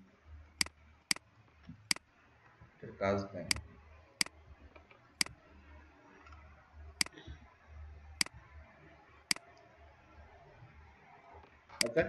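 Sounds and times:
faint low hum: 0.0 - 12.0
computer mouse clicks: 4.2 - 5.4, 11.8 - 12.0.

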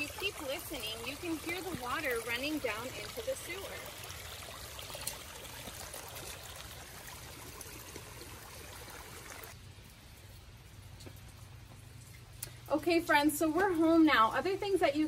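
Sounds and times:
water rushing down a ditch: 0.0 - 10.3.

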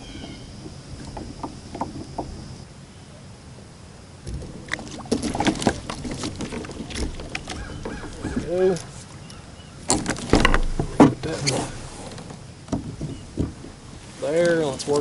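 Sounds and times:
fishing gear clicking and knocking: 0.0 - 2.6, 4.3 - 9.0, 9.9 - 11.4, 12.2 - 15.0.

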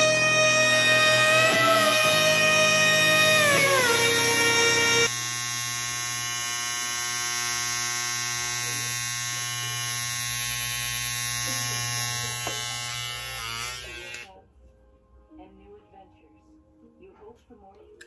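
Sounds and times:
electric hair clippers buzzing: 0.0 - 14.3.

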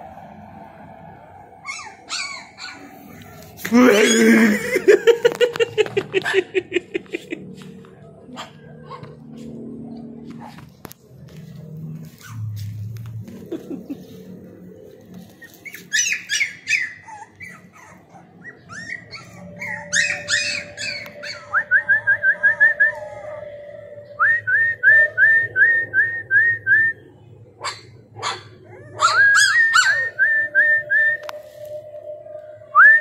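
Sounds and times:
puppies yipping: 1.6 - 3.3, 8.3 - 9.6, 12.0 - 14.5, 15.2 - 23.4, 27.6 - 30.3.

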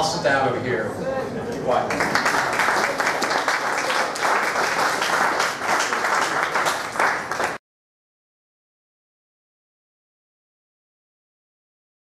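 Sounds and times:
audience applauding: 1.9 - 7.6.

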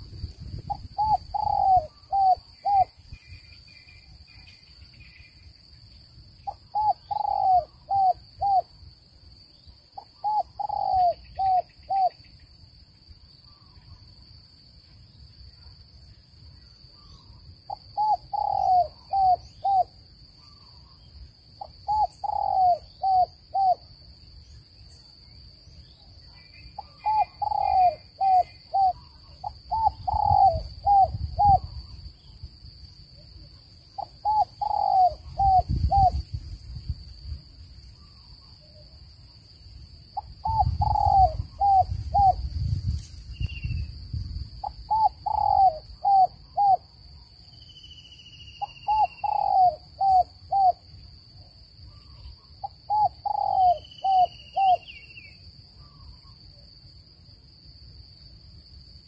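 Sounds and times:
dove cooing: 0.7 - 3.0, 6.5 - 8.7, 10.0 - 12.2, 17.7 - 20.6, 21.6 - 23.8, 26.8 - 31.9, 34.0 - 36.2, 40.2 - 42.5, 44.6 - 46.9, 48.6 - 50.8, 51.9 - 54.9.

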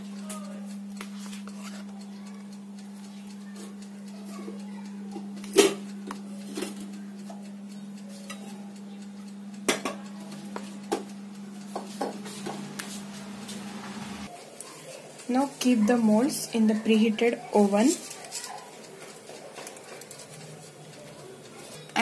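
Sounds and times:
steady low hum: 0.0 - 14.3.

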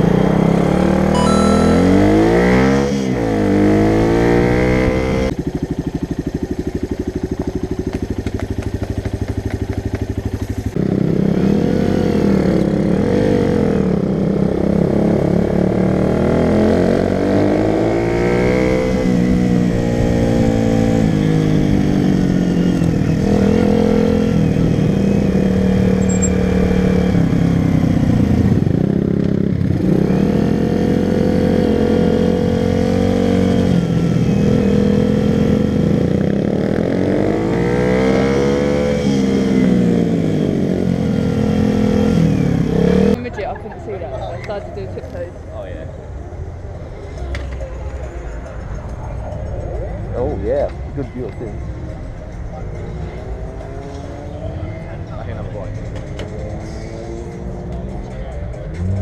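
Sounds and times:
motorcycle engine revving: 0.0 - 43.4.

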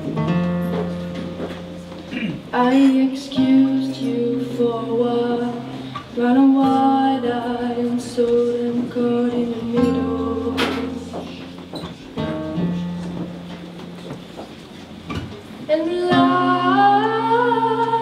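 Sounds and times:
classical guitar: 0.0 - 18.0
woman singing into a microphone: 2.5 - 11.8, 15.6 - 18.0.

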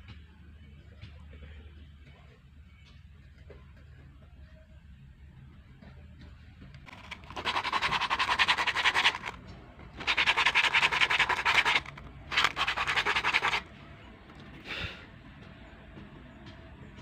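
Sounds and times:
sandpaper rubbing on plastic: 6.9 - 9.4, 10.0 - 13.7.

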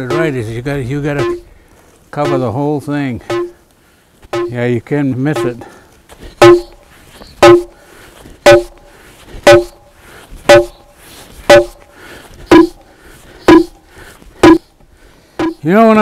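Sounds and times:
heavy tool pounding a log: 0.0 - 0.4, 1.2 - 1.5, 2.2 - 2.4, 3.2 - 3.6, 4.3 - 4.6, 5.4 - 5.6, 6.4 - 6.8, 7.4 - 7.8, 8.4 - 9.8, 10.5 - 10.9, 11.5 - 11.9, 12.5 - 12.8, 13.5 - 13.8, 14.4 - 14.7, 15.4 - 15.6.

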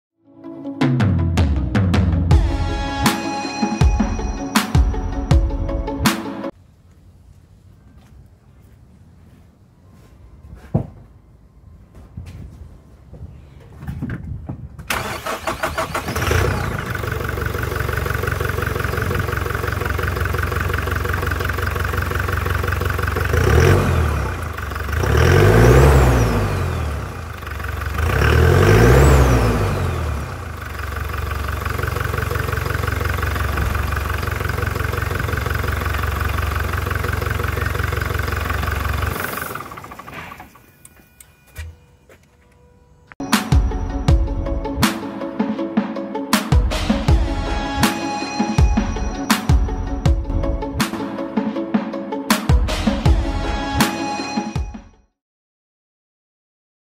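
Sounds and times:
car engine idling and revving: 14.9 - 40.9
engine starter cranking: 14.9 - 41.4.

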